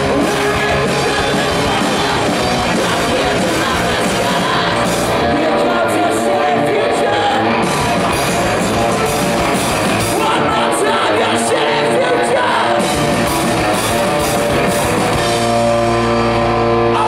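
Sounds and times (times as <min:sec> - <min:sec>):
person singing: 0:00.0 - 0:07.7, 0:10.1 - 0:13.0
live rock band playing: 0:00.0 - 0:17.0.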